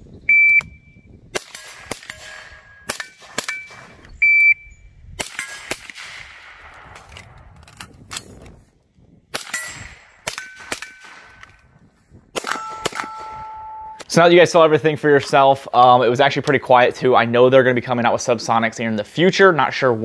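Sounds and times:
shot timer beep: 0.3s - 1.1s, 3.5s - 4.8s, 12.6s - 14.1s
rifle shots: 1.3s - 4.1s, 5.2s - 7.6s, 9.3s - 11.7s, 12.3s - 13.8s
steel target ringing: 9.5s - 11.1s, 12.4s - 14.2s.

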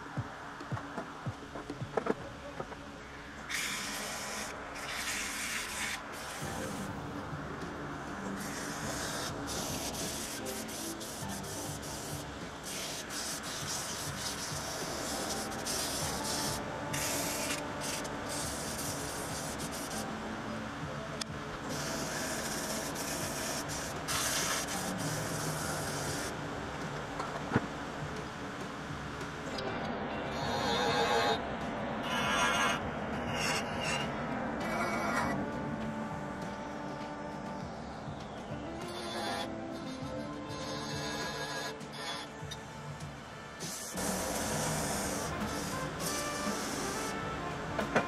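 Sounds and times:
sandpaper hissing on spinning wood: 3.5s - 6.9s, 8.2s - 20.2s, 21.7s - 26.4s, 43.6s - 48.0s
wood lathe humming: 43.6s - 47.8s.

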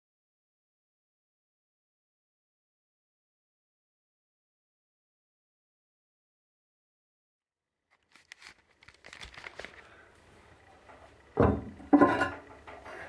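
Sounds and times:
handling clicks and rustling: 7.9s - 9.9s
loud knocks with ringing tone: 11.4s - 12.4s.

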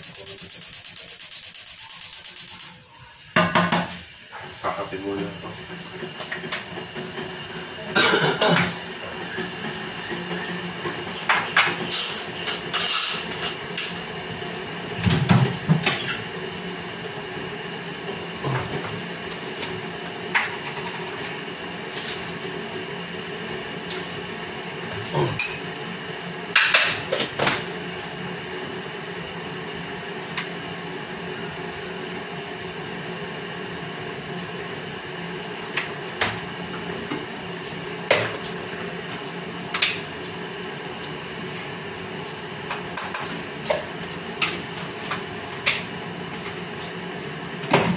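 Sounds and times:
steady background hum: 0.0s - 30.5s
pots and dishes clinking: 25.2s - 25.7s, 42.7s - 43.4s.

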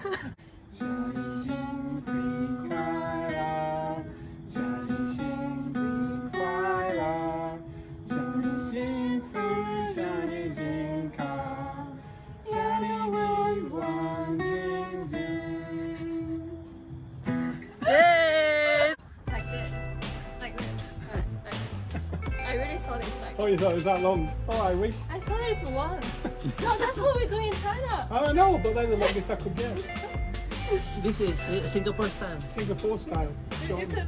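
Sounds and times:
acoustic guitar strumming: 0.7s - 11.6s, 19.3s - 34.0s
people singing: 1.3s - 16.7s.

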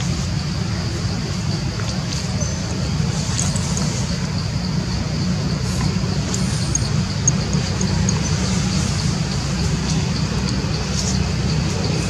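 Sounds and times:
low outdoor rumble: 0.0s - 12.0s
faint steady high tone: 2.2s - 10.9s.

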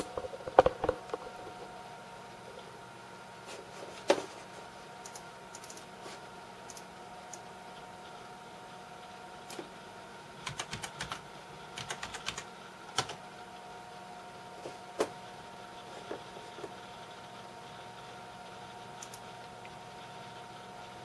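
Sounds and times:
faint electronic whine: 0.0s - 21.0s
typing on computer keyboard: 5.0s - 5.9s, 10.4s - 11.2s, 11.8s - 13.2s.

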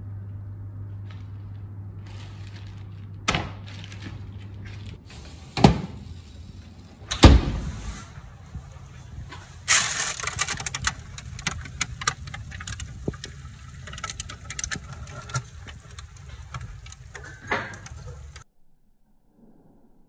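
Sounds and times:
steady low hum: 0.0s - 19.4s
baking paper rustling: 1.0s - 18.4s
crackles and ticks: 9.3s - 18.5s.

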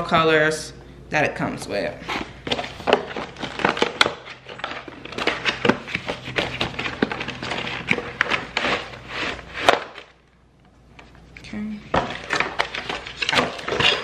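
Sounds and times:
cardboard box being opened: 2.0s - 10.1s.

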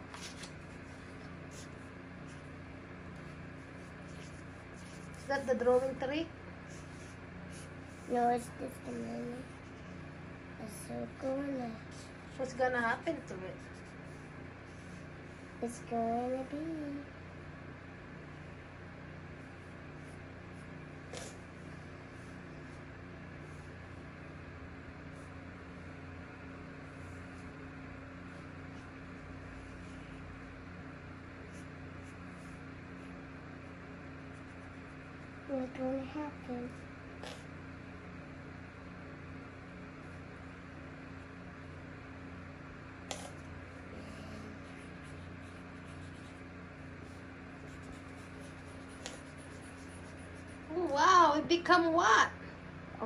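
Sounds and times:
low mechanical hum: 0.0s - 53.0s
marker scratching on paper: 0.1s - 2.5s, 3.2s - 6.0s, 6.6s - 10.0s, 13.4s - 15.1s, 37.2s - 37.5s, 43.1s - 43.5s, 44.4s - 50.7s.

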